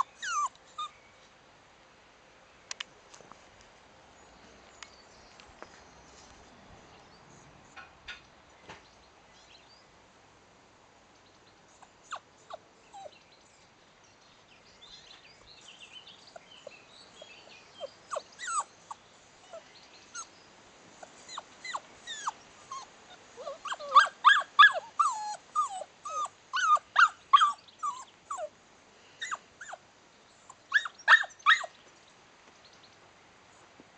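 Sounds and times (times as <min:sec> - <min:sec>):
puppies whining and yipping: 0:00.0 - 0:01.0, 0:11.8 - 0:13.2, 0:17.8 - 0:20.3, 0:21.0 - 0:28.5, 0:29.2 - 0:29.8, 0:30.4 - 0:31.7.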